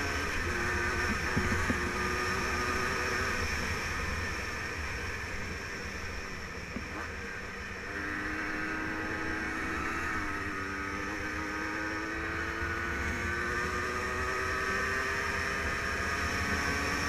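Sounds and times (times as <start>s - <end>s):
two-stroke quad engine running: 0.0s - 17.0s.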